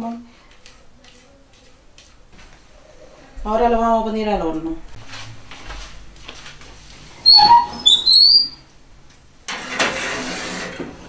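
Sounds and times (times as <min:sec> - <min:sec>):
oven door hinge squeaking: 0:07.2 - 0:08.6
metal pan scraping on rack: 0:09.5 - 0:11.0.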